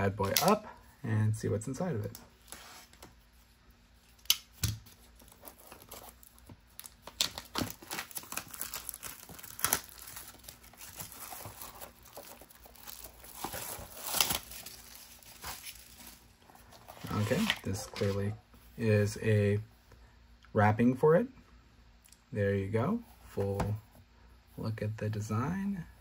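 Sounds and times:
plastic shrink wrap crinkling: 4.1 - 18.2.

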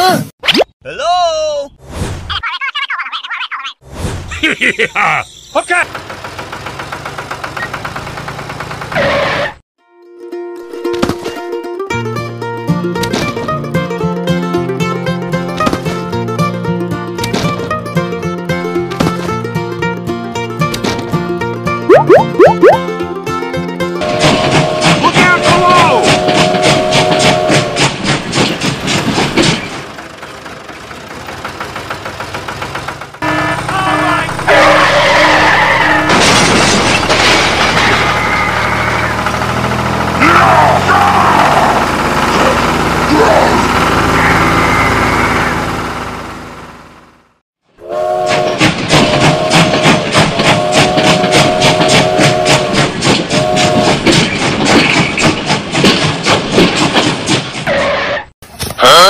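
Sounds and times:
toy train whistle: 24.0 - 27.8, 47.8 - 54.0
toy steam train chuffing: 24.0 - 29.3, 30.1 - 34.8, 47.8 - 54.0.

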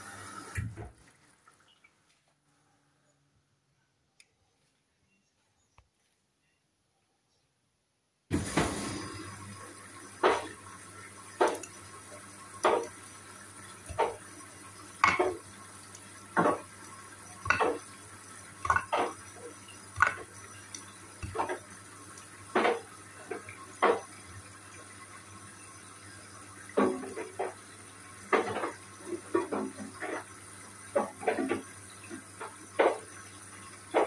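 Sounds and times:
washing machine motor hum: 0.0 - 2.1, 8.3 - 34.0
laundry splashing in washing machine drum: 8.3 - 24.6.

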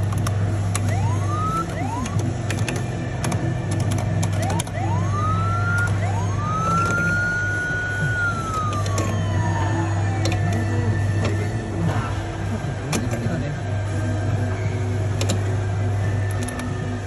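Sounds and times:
steady low hum: 0.0 - 17.0
electronic police siren: 0.8 - 2.4, 4.3 - 11.0.

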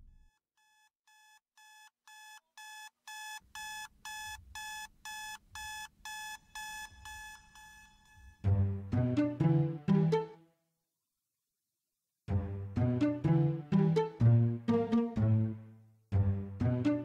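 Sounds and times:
electronic alarm beeping: 2.1 - 8.4.

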